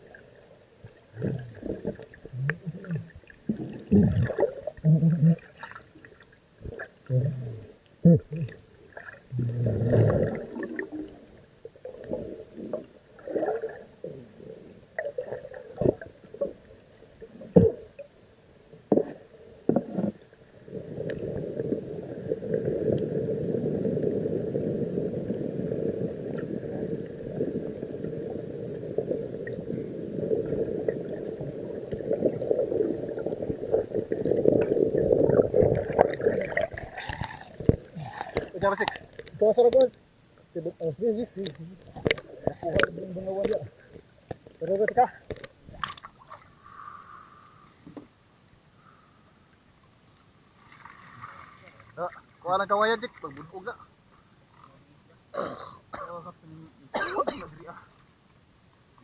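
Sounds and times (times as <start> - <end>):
underwater bubbling gurgles: 0.0 - 18.2, 18.8 - 39.4, 41.4 - 46.6.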